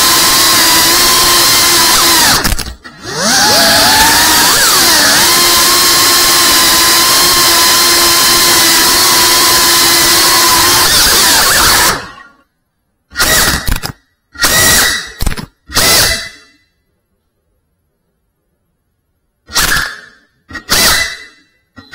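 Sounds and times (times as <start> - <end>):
quadcopter motors whining: 0.0 - 12.3.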